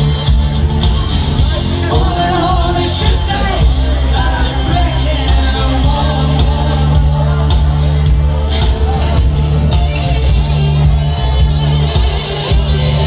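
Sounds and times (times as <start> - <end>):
live rock band playing: 0.0 - 13.0
woman singing: 1.4 - 8.2.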